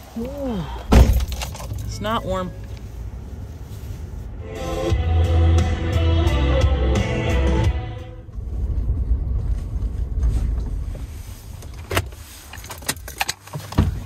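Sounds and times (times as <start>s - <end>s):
pickup engine rumble inside cab: 0.0s - 14.0s
background music: 4.4s - 8.3s.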